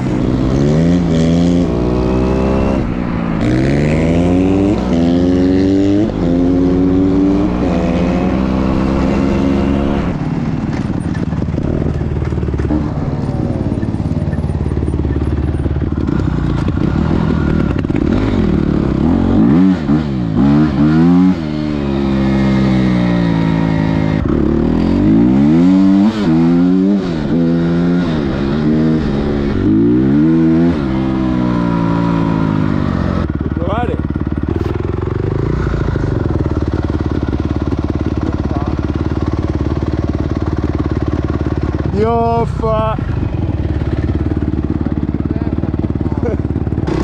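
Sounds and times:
motorcycle engine revving: 0.0 - 47.0.

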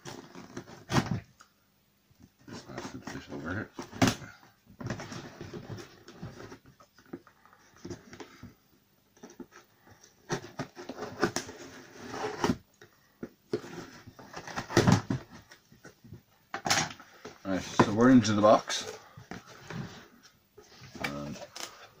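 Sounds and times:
cardboard flaps scraping: 10.2 - 12.6.

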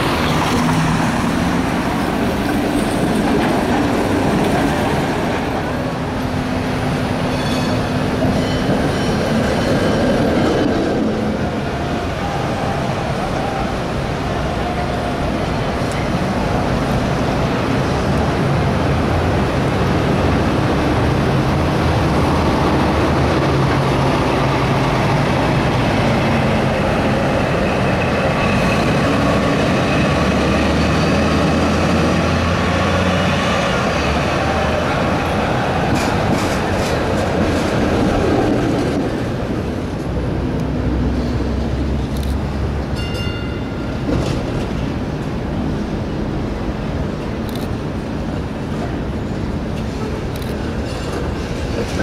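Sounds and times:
city traffic: 0.0 - 52.0
streetcar running on track: 0.0 - 52.0.

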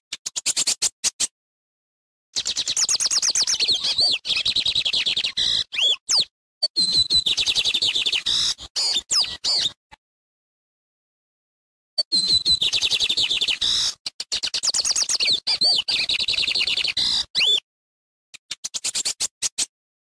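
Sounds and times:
small bird singing: 0.1 - 1.3, 2.4 - 9.8, 12.0 - 17.6, 18.4 - 19.7.

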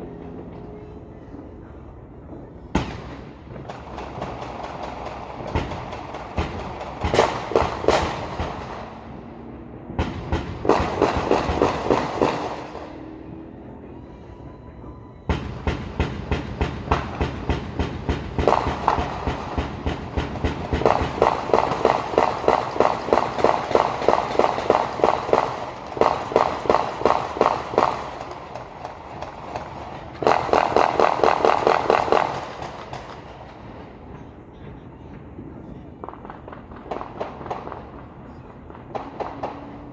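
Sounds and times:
rapid explosive bangs: 2.8 - 9.1, 9.9 - 13.0, 15.3 - 33.9.

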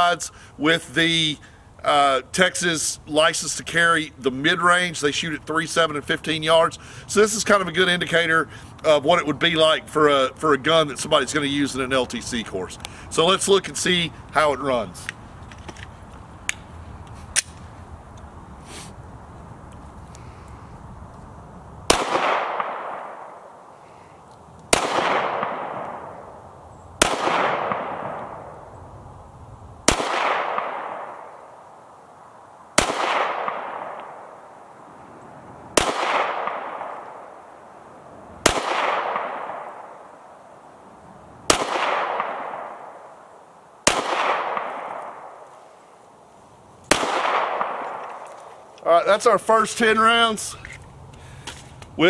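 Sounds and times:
pistol shots: 21.9 - 23.4, 24.7 - 26.3, 27.0 - 28.5, 29.9 - 31.4, 32.8 - 34.3, 35.8 - 37.4, 38.4 - 40.1, 41.5 - 43.1, 43.8 - 45.4, 46.9 - 48.2.

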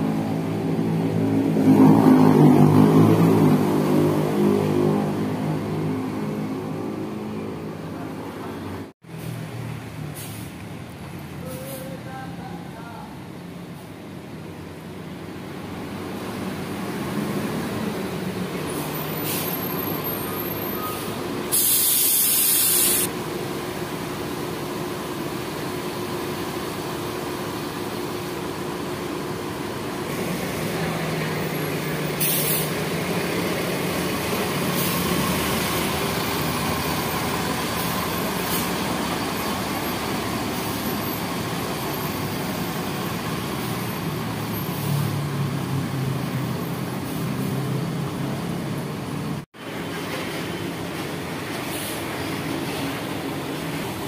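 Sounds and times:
diesel engine pulling away: 0.0 - 12.0, 13.3 - 54.0
air brakes hissing: 10.1 - 10.6, 18.7 - 23.1, 32.1 - 32.8, 37.7 - 39.8, 51.6 - 52.1.

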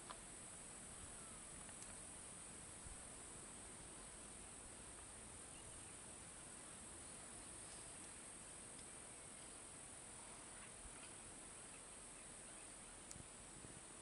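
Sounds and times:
insect drone: 0.0 - 14.0
faint chirps: 0.8 - 2.1, 3.9 - 13.5.

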